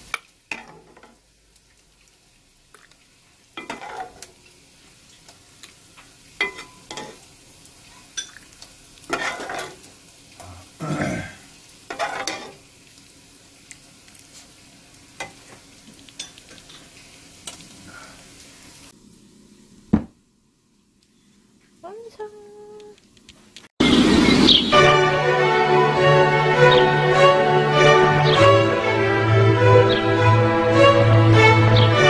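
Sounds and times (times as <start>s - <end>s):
faint frying pan sizzle: 0.0s - 24.2s
metal ladle clinking: 6.4s - 7.2s.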